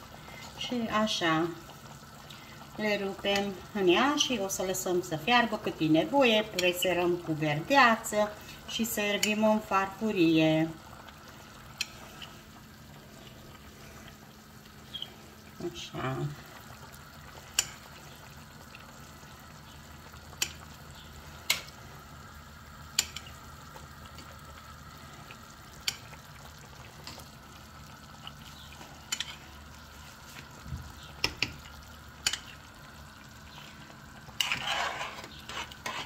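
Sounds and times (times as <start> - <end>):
pot bubbling: 0.0 - 36.0
metal spoon scraping a pot: 34.3 - 36.0.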